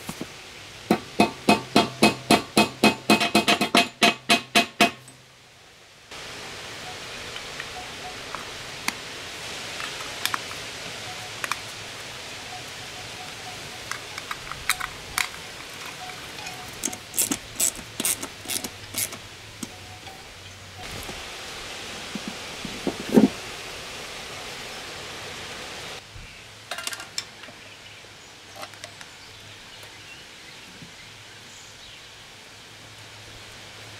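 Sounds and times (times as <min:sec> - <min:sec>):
steady background hiss: 0:00.0 - 0:33.9
small metal parts clicking: 0:13.8 - 0:20.2.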